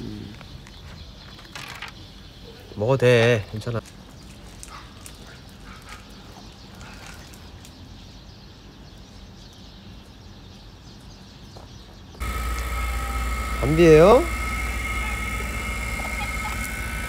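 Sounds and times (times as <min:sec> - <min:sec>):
outdoor background noise: 0:00.0 - 0:17.0.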